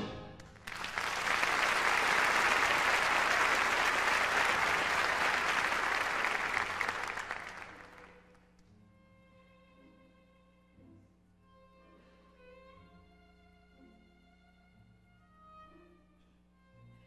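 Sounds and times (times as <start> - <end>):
audience applauding: 0.4 - 8.4.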